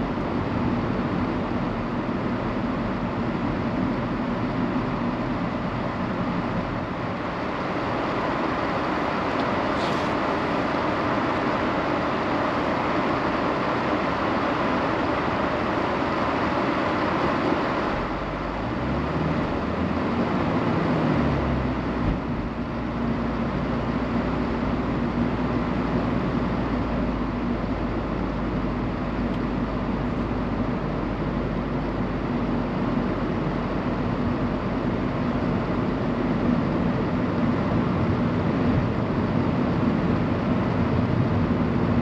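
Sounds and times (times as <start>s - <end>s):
steady hiss inside car: 0.0s - 21.0s, 21.7s - 42.0s
car engine accelerating: 17.6s - 34.7s.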